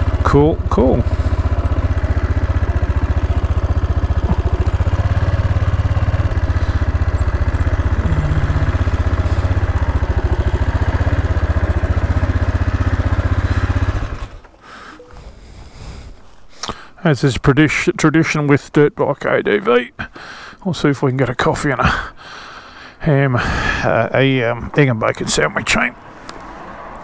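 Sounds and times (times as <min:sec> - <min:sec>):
motorcycle engine thumping: 0:00.0 - 0:14.5.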